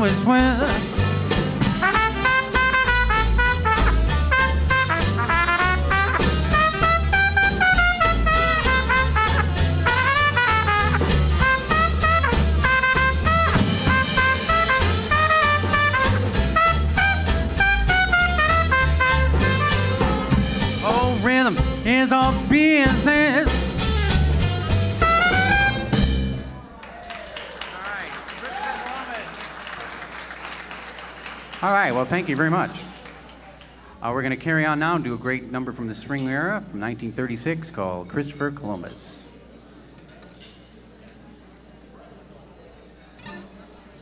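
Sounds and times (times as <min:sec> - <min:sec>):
swing jazz band playing: 0:00.0 - 0:26.6
trumpet leading: 0:01.6 - 0:26.2.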